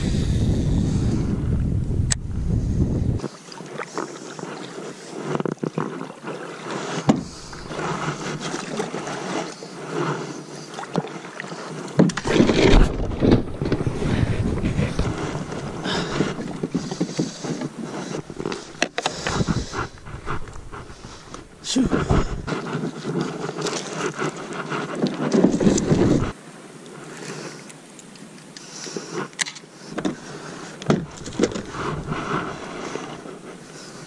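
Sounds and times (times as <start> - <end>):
paddle strokes and water sloshing: 3.2 - 34.0
hull scraping into shallows: 4.0 - 26.4, 30.0 - 34.0.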